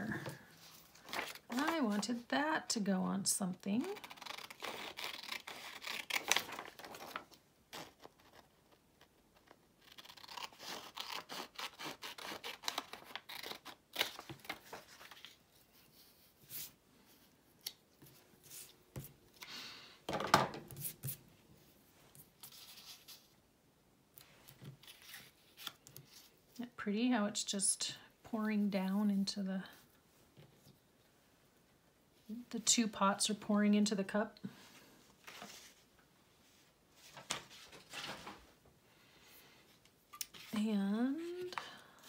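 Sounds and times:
paper rustling: 0.5s - 2.2s, 4.0s - 8.8s, 35.2s - 35.9s, 37.0s - 38.5s
scissors cutting paper: 3.9s - 6.6s, 9.8s - 14.6s.

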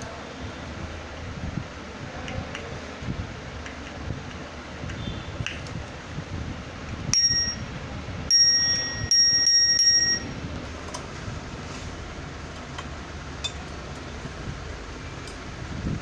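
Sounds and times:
tricycle bell ringing: 7.1s - 7.7s, 8.3s - 10.3s.

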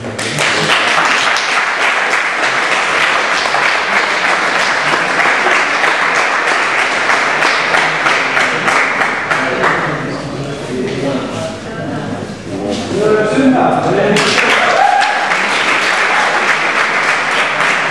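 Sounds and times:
spectators clapping: 0.0s - 10.0s, 14.2s - 17.9s.

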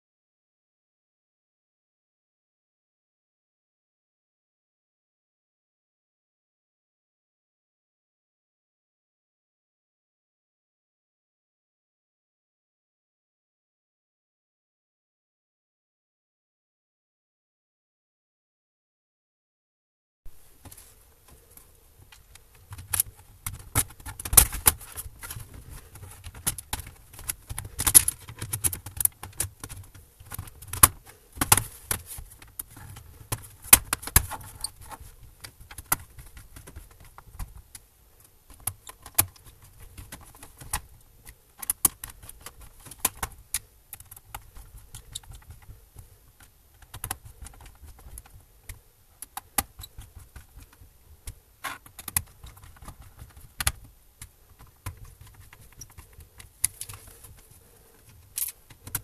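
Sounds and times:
laptop parts clicking and rattling: 20.6s - 59.0s.

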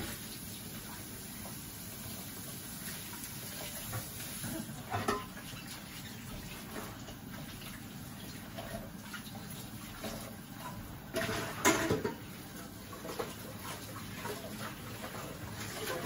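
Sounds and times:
dishes clattering: 4.4s - 5.6s, 11.1s - 12.3s.

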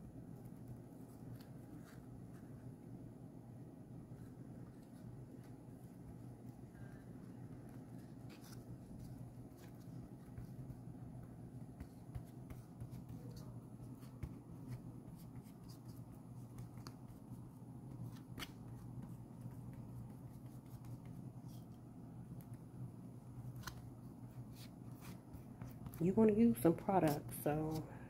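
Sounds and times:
fingers pressing paper towel: 4.6s - 22.6s.

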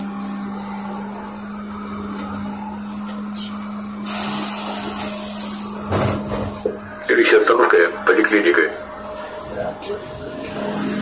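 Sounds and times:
running and road noise: 0.0s - 11.0s
trolleybus low hum: 0.0s - 11.0s.

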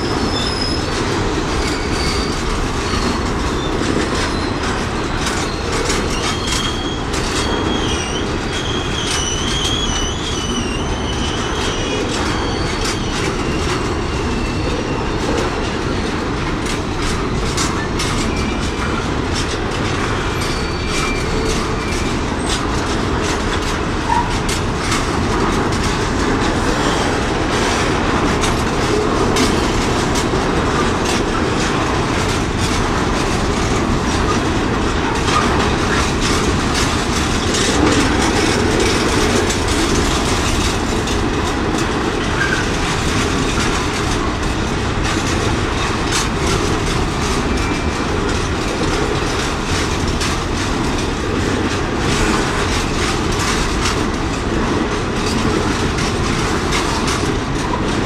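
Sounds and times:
wheel squeal: 0.0s - 16.1s, 20.1s - 22.6s
train wheels rumbling on rails: 0.0s - 58.0s
clicks over rail joints: 0.2s - 58.0s.

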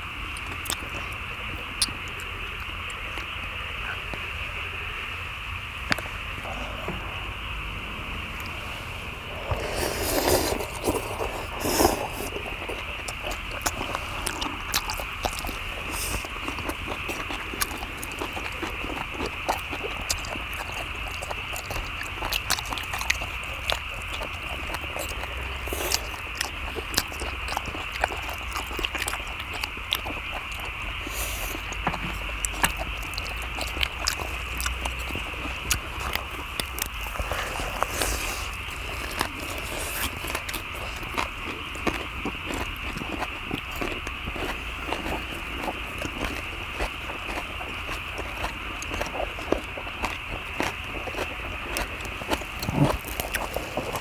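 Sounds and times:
people chewing and lip-smacking: 0.0s - 54.0s
steady hiss: 1.0s - 22.2s.

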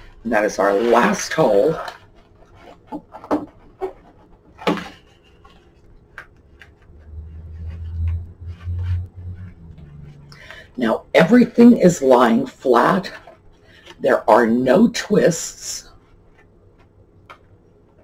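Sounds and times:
low rumble: 6.9s - 11.1s.

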